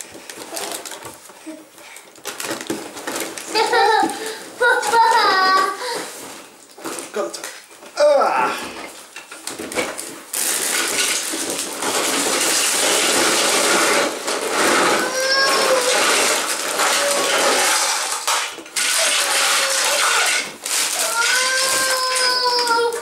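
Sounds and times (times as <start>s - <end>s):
plastic bricks clattering: 10.5s - 23.0s.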